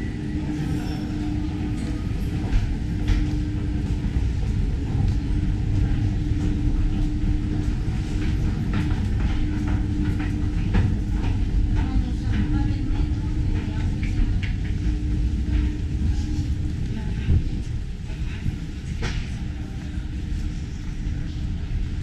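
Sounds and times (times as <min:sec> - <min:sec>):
constant hum: 0:00.0 - 0:22.0
low rumble: 0:00.0 - 0:22.0
footsteps going down stairs: 0:02.4 - 0:11.9.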